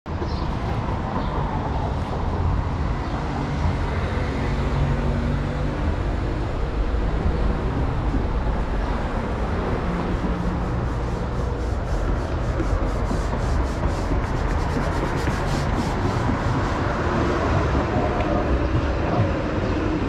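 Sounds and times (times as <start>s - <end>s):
city street traffic rumble: 0.1s - 20.0s.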